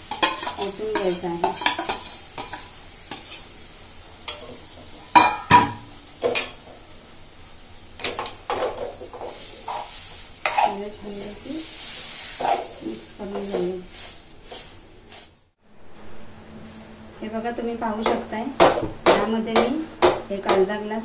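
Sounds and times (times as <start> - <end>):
metal spoon scraping pot: 0.0 - 3.4, 9.7 - 10.8.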